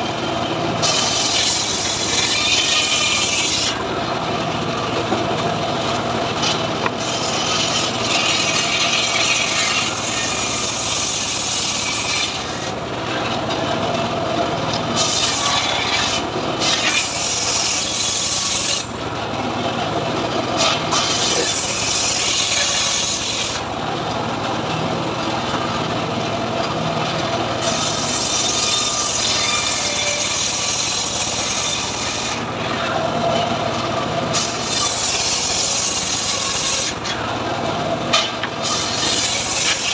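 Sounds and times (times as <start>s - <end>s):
saw drive hum: 0.0s - 39.9s
saw blade spinning free: 0.8s - 3.8s, 6.5s - 12.8s, 20.6s - 23.6s, 38.2s - 39.9s
table saw ripping a log: 0.8s - 3.9s, 6.4s - 13.5s, 14.7s - 19.0s, 20.5s - 23.7s, 27.6s - 33.4s, 34.3s - 37.2s, 38.1s - 39.9s.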